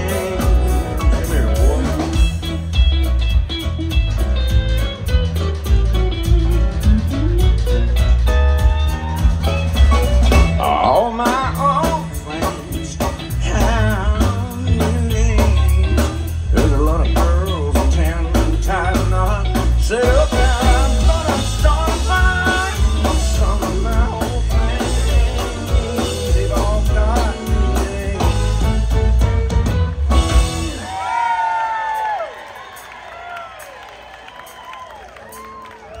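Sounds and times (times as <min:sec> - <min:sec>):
electric bass: 0:00.0 - 0:31.0
drums: 0:00.0 - 0:36.0.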